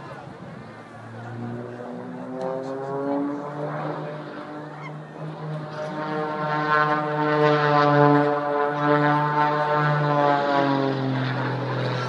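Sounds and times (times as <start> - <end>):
propeller plane droning overhead: 0.0 - 12.0.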